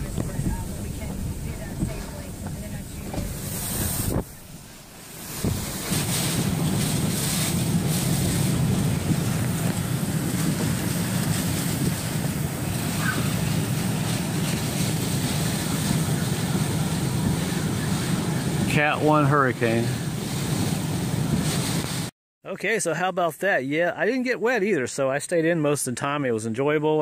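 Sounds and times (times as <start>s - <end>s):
driving rain: 0.0s - 22.1s
strong gusting wind: 0.0s - 22.1s.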